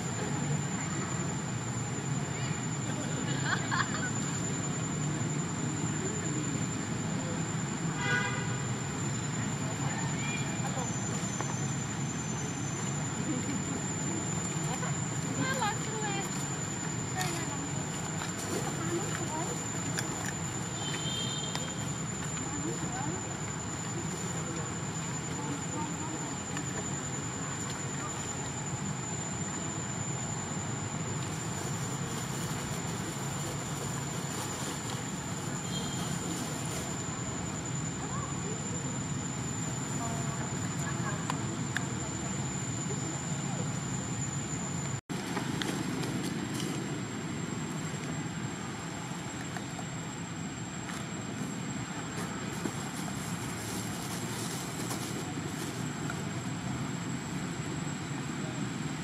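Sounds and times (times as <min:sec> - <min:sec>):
continuous rushing hiss: 0:00.0 - 0:59.0
outdoor background rumble: 0:00.0 - 0:59.0
thin high whine: 0:00.0 - 0:59.0.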